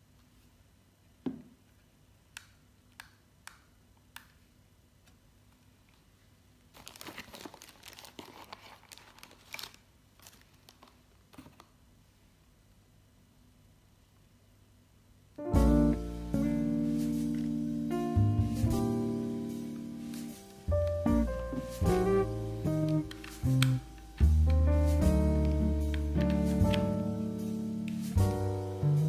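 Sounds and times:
packaging being handled: 0:06.7 - 0:11.8, 0:20.1 - 0:27.2
packaging crinkling: 0:06.7 - 0:11.8.

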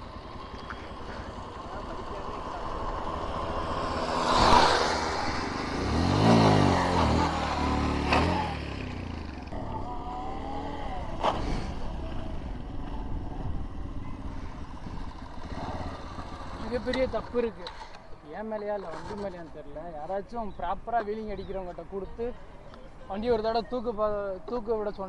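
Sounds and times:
motorcycles revving past: 0:00.0 - 0:18.0.

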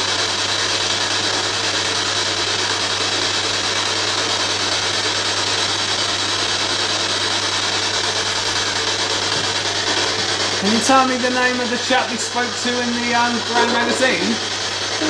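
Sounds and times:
radio static: 0:10.0 - 0:15.0.

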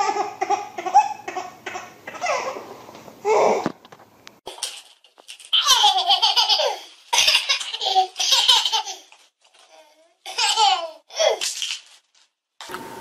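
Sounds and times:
toddler giggling: 0:05.6 - 0:09.1.

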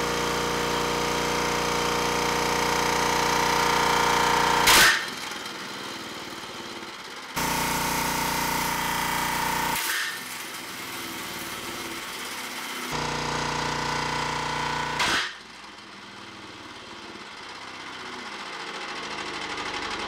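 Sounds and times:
small engines knocking: 0:10.5 - 0:20.0.

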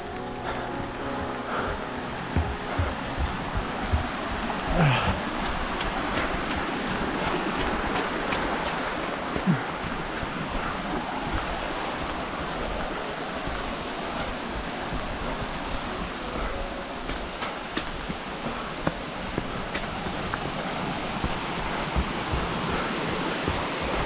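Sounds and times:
stream rushing over cascades: 0:00.0 - 0:24.0
footfalls on path: 0:02.3 - 0:12.9, 0:17.0 - 0:24.0.

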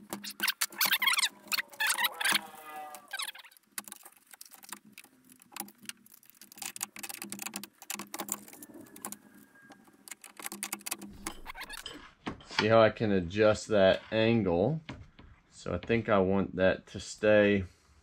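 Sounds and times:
metal parts clicking and rattling: 0:00.0 - 0:09.2, 0:09.8 - 0:12.0.

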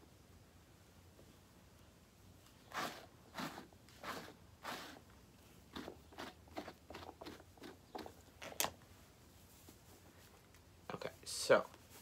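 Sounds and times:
brush stroking through fur: 0:02.7 - 0:06.3, 0:11.4 - 0:12.0.

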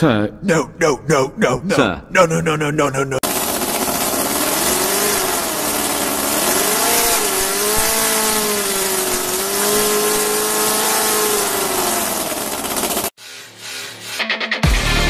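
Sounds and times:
model engine buzzing: 0:03.2 - 0:14.4.

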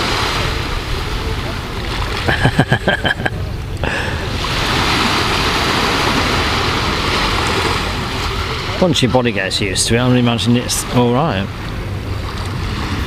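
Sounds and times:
waves washing on pebble shore: 0:00.0 - 0:00.9, 0:04.3 - 0:08.7.

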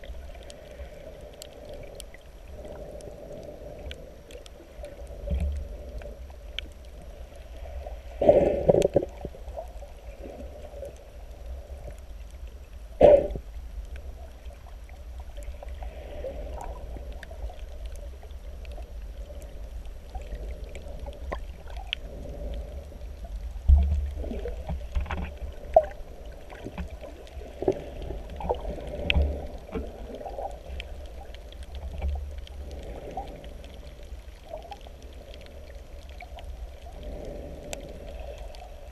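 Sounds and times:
low steady rumble: 0:00.0 - 0:38.9
muffled underwater water sloshing: 0:00.0 - 0:38.9.

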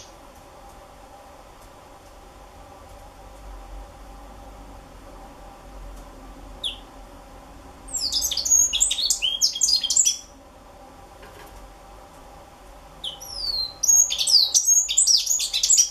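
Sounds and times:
bird singing: 0:06.6 - 0:06.9, 0:07.9 - 0:10.3, 0:13.0 - 0:15.9.

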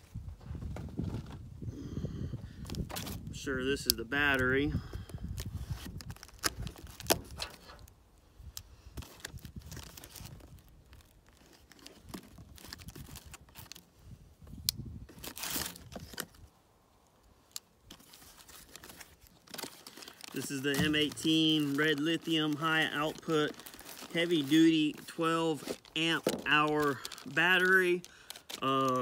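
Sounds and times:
cardboard flaps rustling and scraping: 0:00.0 - 0:01.5, 0:02.7 - 0:03.3, 0:17.9 - 0:27.8
packing tape tearing: 0:05.3 - 0:07.9, 0:09.0 - 0:13.8, 0:15.1 - 0:16.4, 0:17.5 - 0:29.0.

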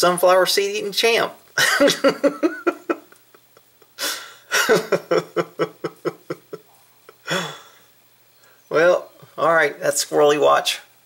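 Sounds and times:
man laughing: 0:01.6 - 0:07.8
breathy outbreath: 0:04.0 - 0:04.5, 0:07.2 - 0:08.6.

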